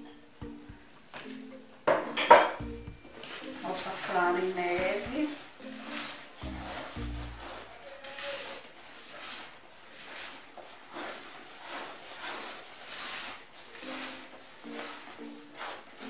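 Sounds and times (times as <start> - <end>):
utensil scraping through batter: 3.2 - 16.0.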